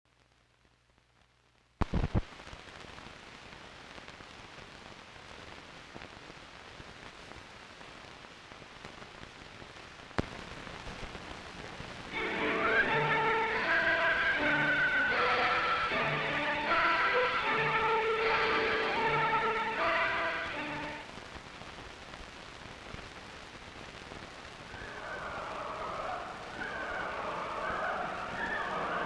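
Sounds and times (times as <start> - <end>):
film soundtrack hiss and crackle: 0.1 - 29.0
loud pops: 10.1 - 12.1
music: 12.1 - 21.1, 24.8 - 29.0.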